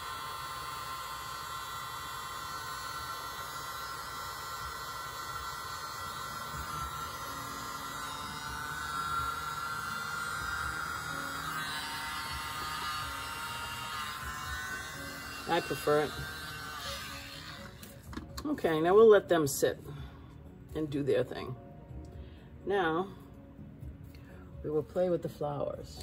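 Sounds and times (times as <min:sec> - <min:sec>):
small motor whine: 0:00.0 - 0:18.4
steady electric hum: 0:00.0 - 0:26.0.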